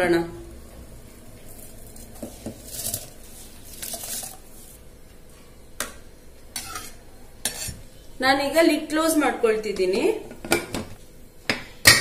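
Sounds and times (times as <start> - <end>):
ladle stirring: 1.4 - 4.8, 6.6 - 7.8.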